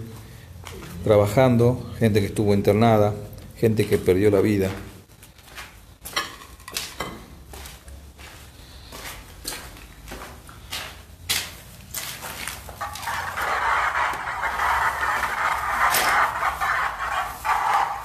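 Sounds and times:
footsteps on gritty concrete: 4.6 - 17.8
steady rushing hiss: 12.8 - 18.0.

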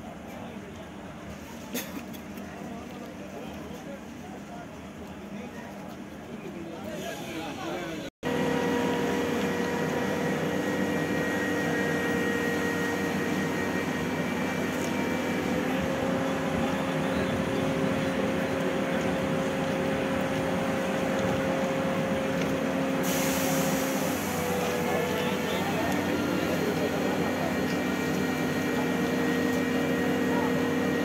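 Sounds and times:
crane diesel engine running: 8.2 - 31.0
hiss: 23.0 - 24.9.

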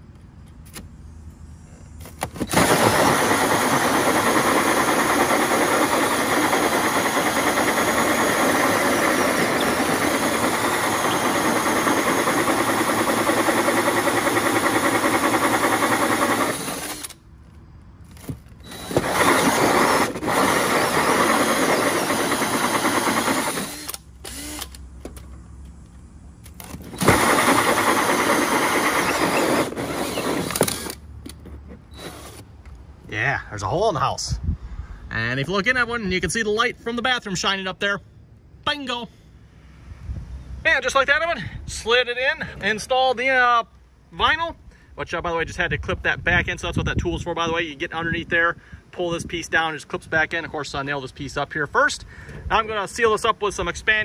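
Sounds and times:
cordless drill cutting through wall: 2.5 - 17.2, 18.6 - 24.8, 26.9 - 31.0, 31.9 - 32.4.

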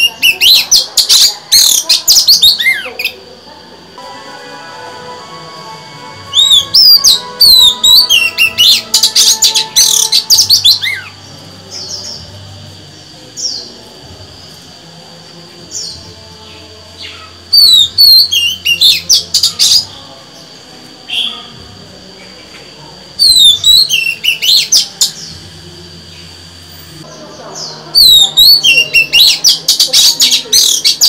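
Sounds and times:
bird singing whistled phrases: 6.4 - 11.1, 17.6 - 19.8, 23.2 - 24.9, 28.0 - 31.0.

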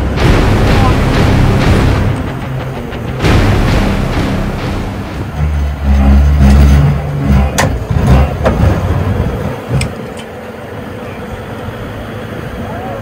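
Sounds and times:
sharp knocks: 0.0 - 8.8
off-road vehicle engine revving: 0.0 - 10.2.

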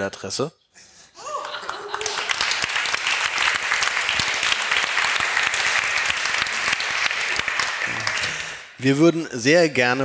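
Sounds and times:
audience applauding: 1.4 - 9.0.

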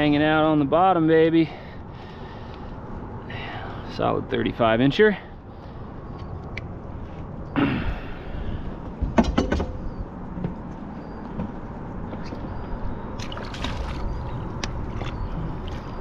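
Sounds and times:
wind and water noise: 0.0 - 16.0
handling clicks and knocks: 9.0 - 9.8
light water splashing: 13.2 - 15.9.

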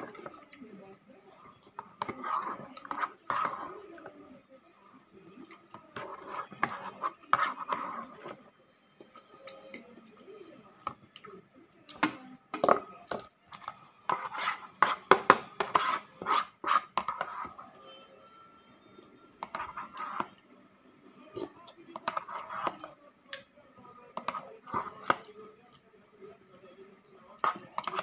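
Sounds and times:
cutlery scraping plastic container: 1.7 - 4.1, 5.7 - 8.5, 11.9 - 17.7, 19.4 - 20.4, 21.4 - 22.9, 24.2 - 25.4, 27.4 - 28.0.

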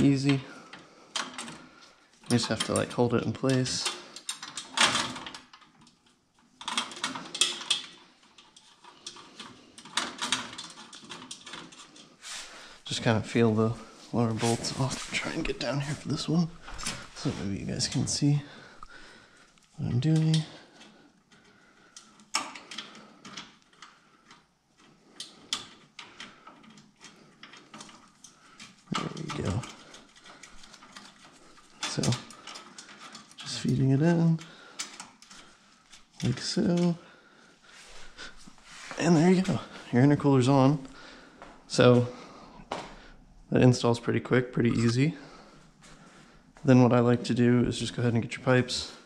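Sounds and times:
metal parts clicking and scraping: 0.0 - 12.5, 19.9 - 37.0.

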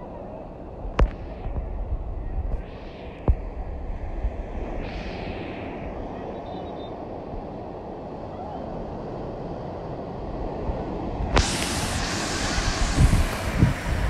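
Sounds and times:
wind rumbling on microphone: 0.0 - 14.0
surf breaking on beach: 0.5 - 14.0
hiss of foam washing in: 2.6 - 8.2, 9.0 - 14.0.

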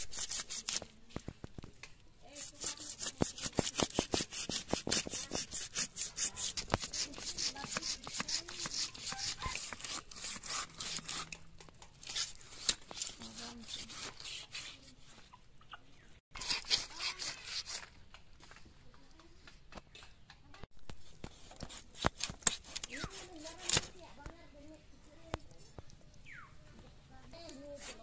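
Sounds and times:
rapid rasping strokes: 0.0 - 0.9, 2.2 - 15.0, 16.4 - 17.9, 20.9 - 24.1.

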